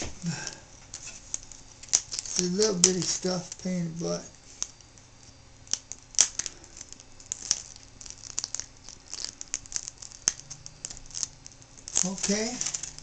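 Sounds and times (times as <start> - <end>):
fingers clicking ribbon cable: 5.6 - 13.0.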